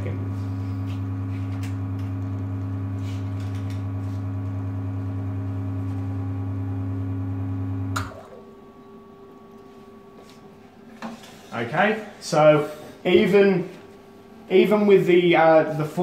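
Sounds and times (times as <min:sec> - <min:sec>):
espresso machine pump humming: 0:00.0 - 0:08.6.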